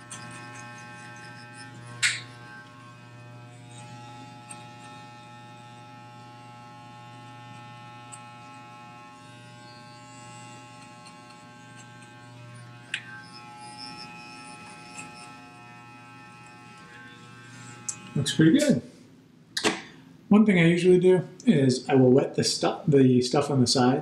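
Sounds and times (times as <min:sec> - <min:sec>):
electric hair clippers buzzing: 0:00.0 - 0:18.8
sharp click: 0:19.6 - 0:19.9.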